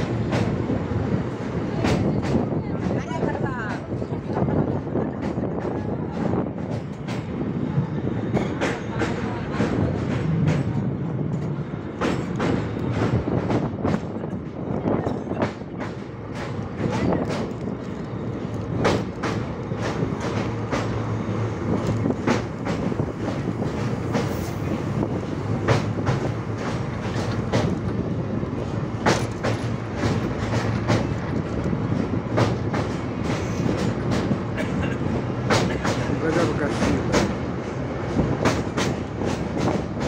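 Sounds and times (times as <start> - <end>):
train wheels rumbling on rails: 0.0 - 40.0
wheels clacking over rail joints: 8.3 - 40.0.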